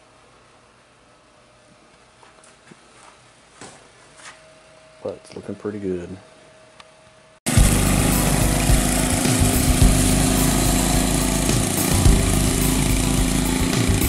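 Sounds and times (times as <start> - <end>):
go-kart engine running: 7.5 - 14.0.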